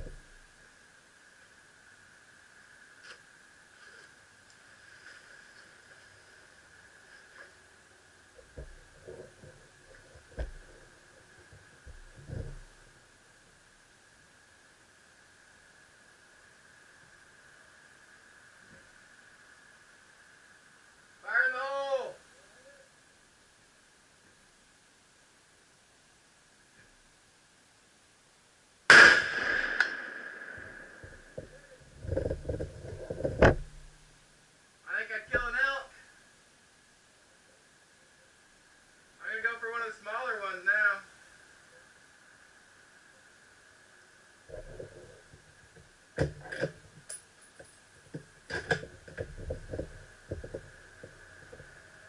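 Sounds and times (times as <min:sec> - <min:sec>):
small knocks and clatter: 0:08.4 - 0:12.9, 0:31.0 - 0:34.0, 0:44.5 - 0:51.9
rifle shot: 0:28.9 - 0:31.4
sharp crack: 0:28.9 - 0:31.8
rifle handling clicks and knocks: 0:46.2 - 0:51.7.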